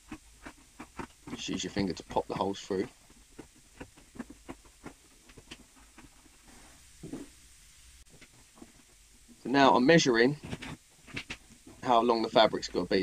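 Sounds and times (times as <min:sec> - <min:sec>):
fingers tapping foam: 0:00.0 - 0:06.5.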